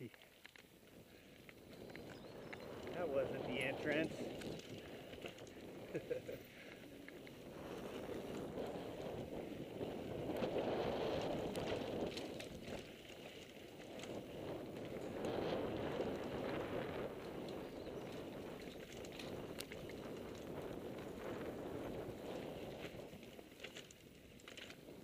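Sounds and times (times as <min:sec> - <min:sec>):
bike clicks and rattles: 0:00.0 - 0:25.0
bike tyres rolling over dirt: 0:00.0 - 0:25.0.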